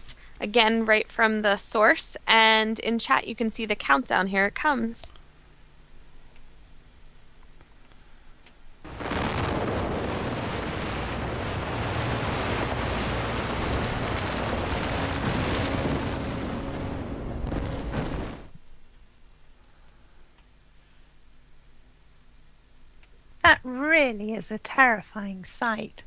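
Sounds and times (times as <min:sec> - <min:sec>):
deep explosion blast: 0:08.9 - 0:18.6.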